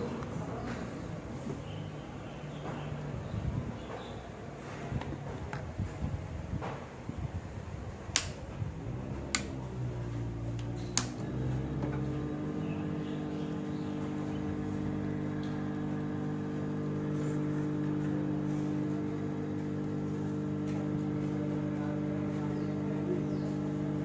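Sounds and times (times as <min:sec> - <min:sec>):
hot air gun blower humming: 0:03.5 - 0:24.0
sharp clicks: 0:08.1 - 0:08.4, 0:09.3 - 0:09.6, 0:10.6 - 0:11.3.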